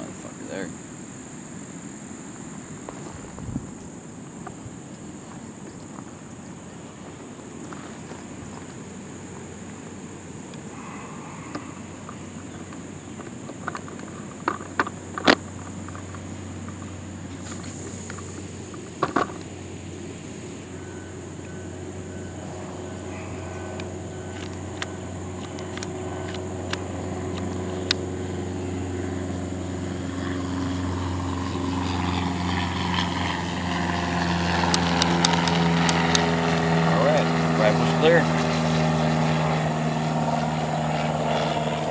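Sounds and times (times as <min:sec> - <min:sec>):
motor engine drone: 0:00.0 - 0:41.9
rifle action clicking: 0:23.8 - 0:28.0.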